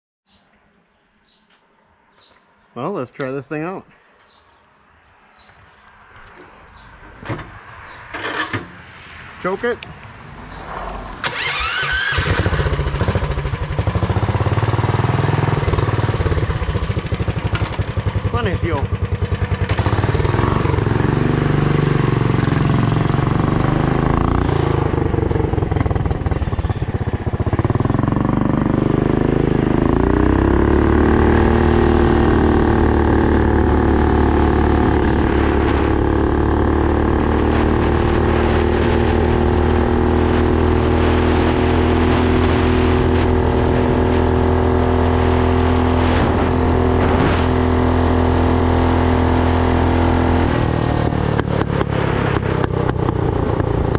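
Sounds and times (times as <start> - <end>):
minibike engine revving: 11.2 - 53.9.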